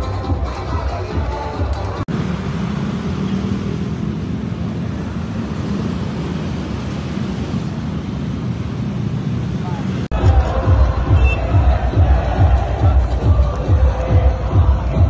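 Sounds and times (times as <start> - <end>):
city street traffic: 0.0 - 15.0.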